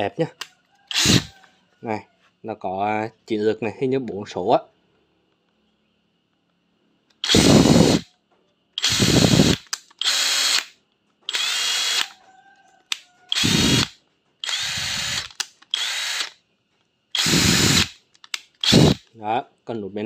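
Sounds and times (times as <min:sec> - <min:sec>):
impact driver trigger pulls: 0:08.8 - 0:10.7, 0:12.9 - 0:16.3, 0:17.2 - 0:19.1.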